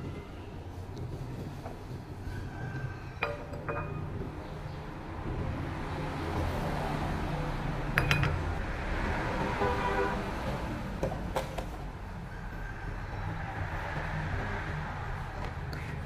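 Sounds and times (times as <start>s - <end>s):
kitchenware clinking on a pot: 3.1s - 4.3s, 7.9s - 8.5s.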